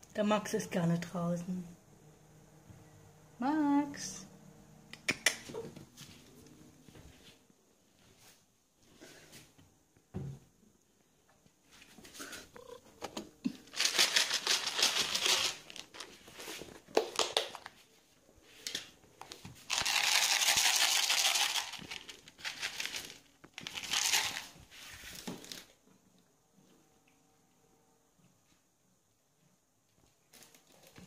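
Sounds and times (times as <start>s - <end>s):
plastic bag crinkling: 13.5s - 17.8s, 19.6s - 25.7s.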